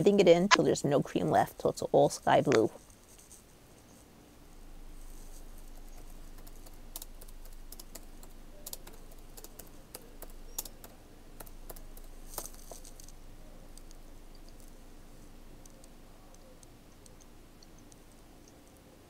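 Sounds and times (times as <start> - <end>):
typing on computer keyboard: 5.8 - 12.8.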